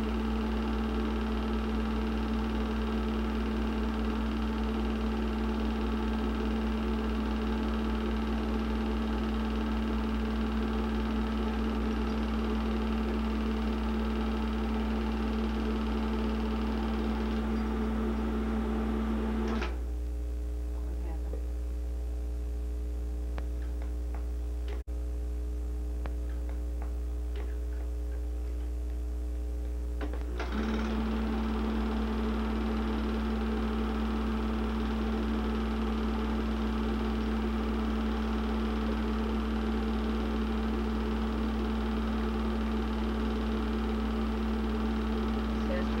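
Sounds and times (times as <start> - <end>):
film projector whirring: 0.0 - 19.9, 30.0 - 46.0.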